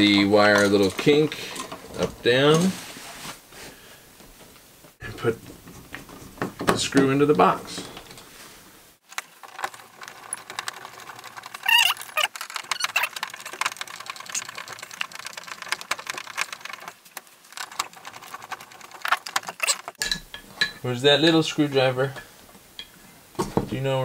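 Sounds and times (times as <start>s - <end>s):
brief high-pitched squeak: 11.6s - 13.1s, 19.6s - 19.9s
screwdriver clicks and metal scrapes: 17.5s - 20.8s.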